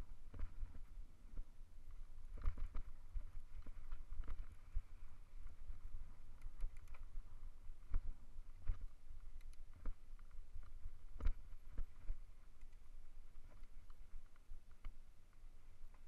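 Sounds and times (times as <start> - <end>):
wind rumble on microphone: 0.0 - 14.8
bike clicks and rattles: 2.4 - 2.9, 5.6 - 7.2.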